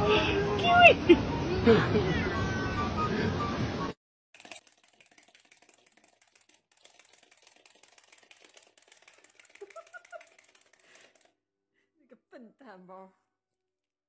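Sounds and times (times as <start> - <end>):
fast faint clicking: 4.4 - 11.3.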